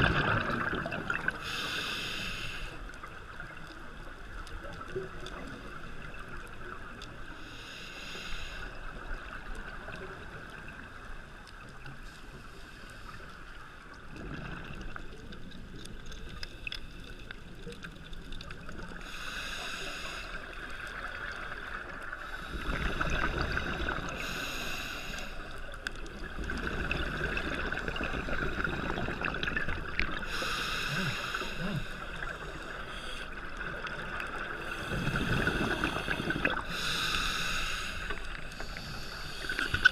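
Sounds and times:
exhaled bubbles underwater: 0.0 - 1.6, 14.0 - 19.1, 20.4 - 24.5, 25.4 - 36.9
regulator inhalation hiss: 1.4 - 2.8, 7.4 - 8.8, 19.0 - 20.6, 22.2 - 25.6, 30.2 - 33.4, 34.6 - 39.9.

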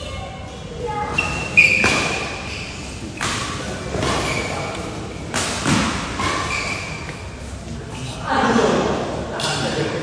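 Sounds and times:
shoes squeaking on court: 1.0 - 5.0, 6.1 - 7.7
racket hitting shuttlecock: 1.6 - 2.4, 3.1 - 4.4.

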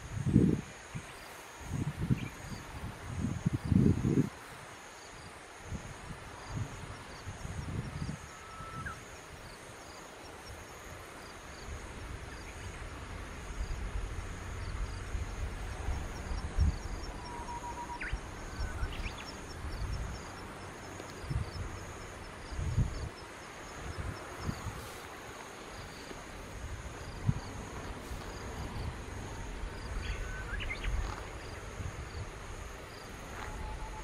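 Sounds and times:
high insect drone: 0.0 - 34.0
faint short whistles: 8.3 - 9.0.

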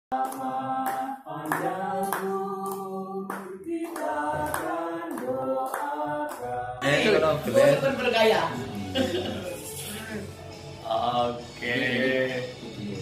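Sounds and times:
group singing: 0.1 - 13.0
hands clapping in time: 0.2 - 6.5.

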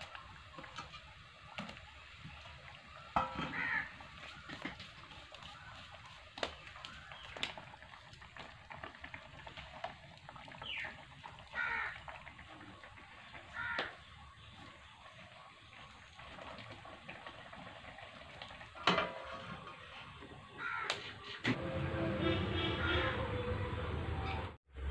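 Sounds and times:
metal lid clanking on wok: 3.2 - 3.6, 18.8 - 19.5
bird calls: 10.6 - 11.0.

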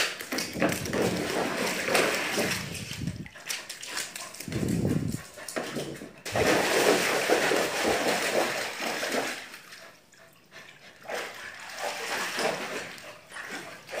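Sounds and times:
dog splashing in water: 0.0 - 9.8, 11.0 - 14.0.

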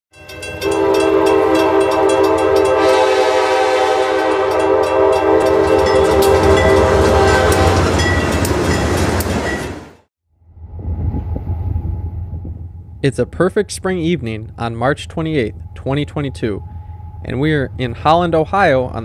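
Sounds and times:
train rumble: 0.2 - 10.0, 10.6 - 19.0
locomotive air horn blast: 0.6 - 8.0
wheels clicking over rails: 4.4 - 9.8.

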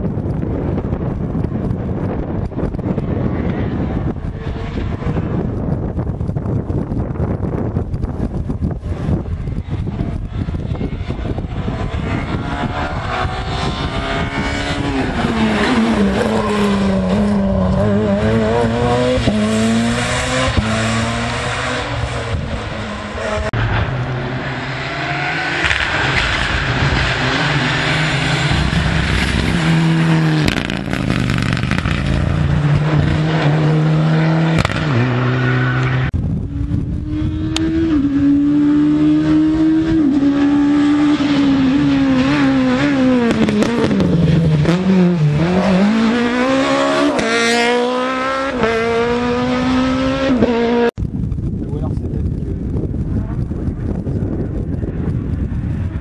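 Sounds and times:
rally car engines revving: 0.0 - 51.0.

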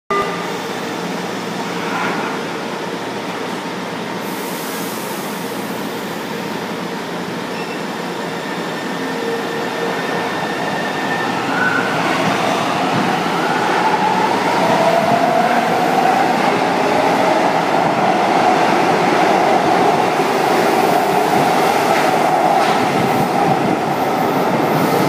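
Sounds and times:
train doors closing with hiss: 4.2 - 6.4, 20.2 - 23.9.

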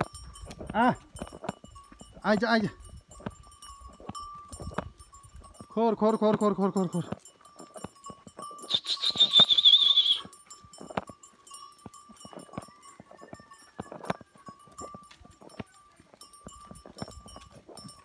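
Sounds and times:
goat hooves clicking on dirt: 0.0 - 18.0
high warbling whistle: 8.7 - 10.2.

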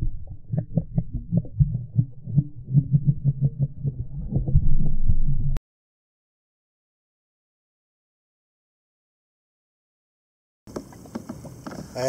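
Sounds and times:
underwater rhythmic thumping: 0.0 - 5.6, 10.7 - 12.0.

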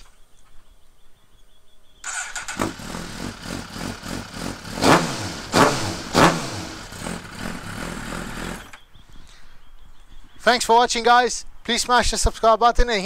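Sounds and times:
motorcycle engine idling and revving: 2.0 - 9.0.

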